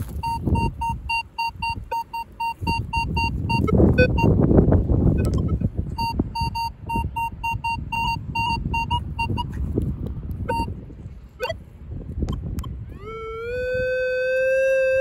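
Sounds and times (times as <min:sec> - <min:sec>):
metal detector beeping: 0:00.0 - 0:04.4, 0:05.1 - 0:09.6, 0:10.4 - 0:10.8, 0:11.4 - 0:11.6.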